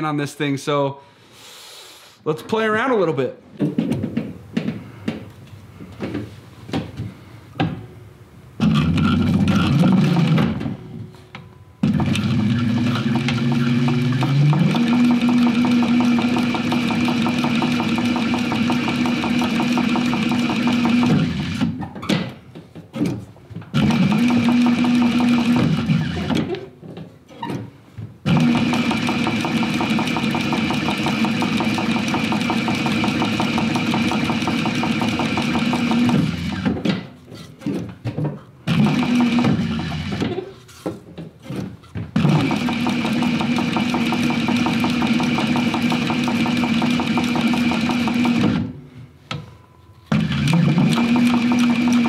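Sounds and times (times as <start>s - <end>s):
sewing machine stitching leather: 8.6s - 10.8s, 11.8s - 21.8s, 23.0s - 26.7s, 28.2s - 36.8s, 38.7s - 40.8s, 41.4s - 48.8s, 50.1s - 52.0s.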